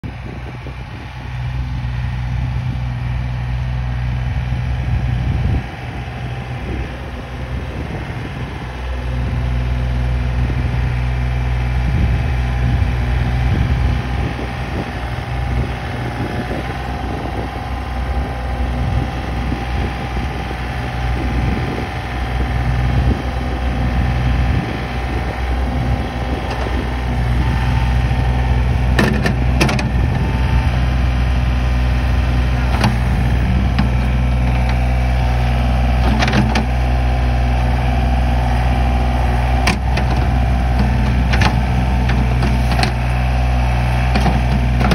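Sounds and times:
tractor engine running: 0:00.0 - 0:44.9
loader clanks: 0:22.2 - 0:44.9.

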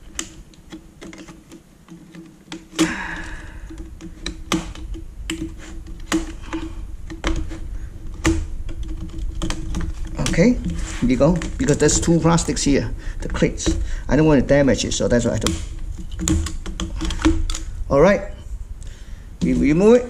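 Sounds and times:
prying tool clicking on plastic: 0:00.0 - 0:12.6, 0:15.4 - 0:17.8
plastic scraping rasp: 0:00.0 - 0:17.8.

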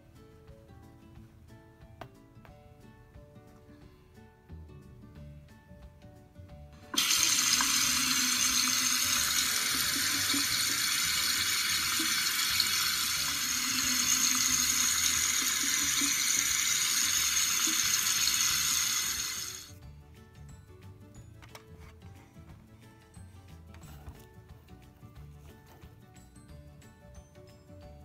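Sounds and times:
tap water running into sink: 0:06.9 - 0:19.7.

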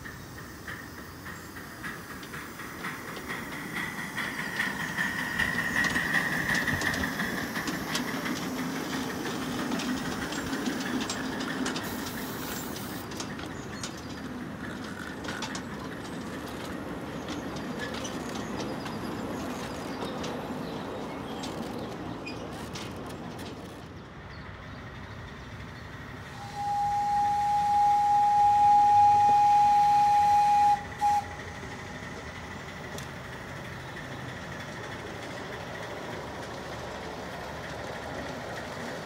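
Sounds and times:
steam hiss: 0:00.0 - 0:13.8, 0:26.2 - 0:33.8
train wheels clicking over rail joints: 0:00.0 - 0:39.0.

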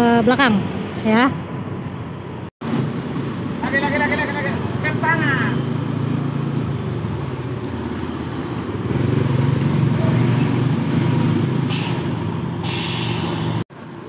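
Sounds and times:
bus diesel engine running: 0:10.9 - 0:14.0
air hiss: 0:11.7 - 0:13.6.

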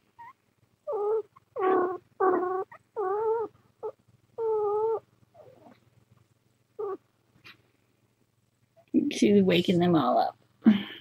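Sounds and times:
cat purring: 0:00.0 - 0:07.1.

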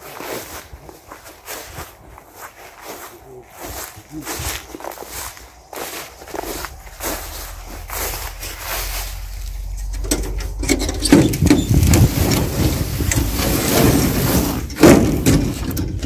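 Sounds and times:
rustling scraping and knocking: 0:03.7 - 0:16.0.

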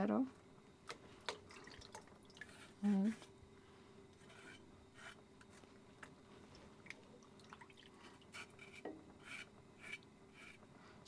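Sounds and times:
faint steady hum: 0:00.0 - 0:11.0
water dripping into pot: 0:01.2 - 0:02.5, 0:06.8 - 0:07.9
knife scraping plantain: 0:04.2 - 0:05.2, 0:08.3 - 0:10.6.

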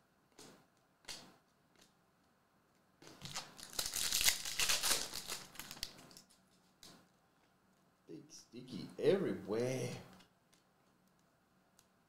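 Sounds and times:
soft clicks of cards handled: 0:00.3 - 0:03.2, 0:10.1 - 0:12.0
foil wrapper tearing and crinkling: 0:03.2 - 0:06.3.

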